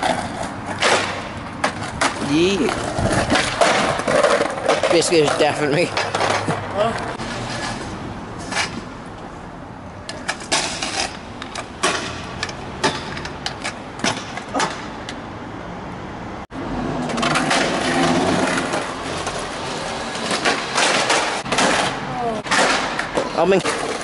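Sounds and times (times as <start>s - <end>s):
skateboard clacks: 0.0s - 7.8s, 17.0s - 24.0s
scooter deck clacking on ground: 0.0s - 8.9s, 10.0s - 15.2s, 17.0s - 24.0s
skateboard rolling over paving: 0.0s - 9.0s, 16.8s - 24.0s
scooter wheels rolling over paving: 0.0s - 9.4s, 10.0s - 15.0s, 16.8s - 24.0s.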